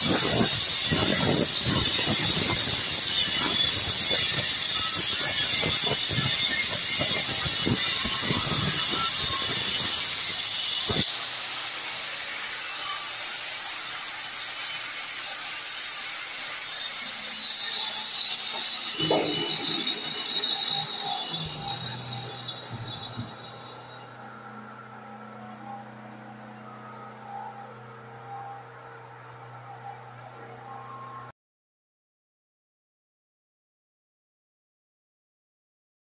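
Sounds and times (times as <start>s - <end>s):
angle grinder cutting tile: 0.0s - 24.1s.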